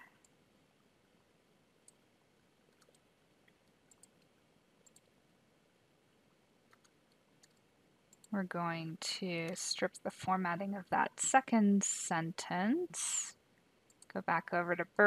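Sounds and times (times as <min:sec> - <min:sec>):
computer mouse clicks: 0:01.8 - 0:02.0, 0:02.7 - 0:05.2, 0:06.7 - 0:08.4, 0:13.9 - 0:14.2.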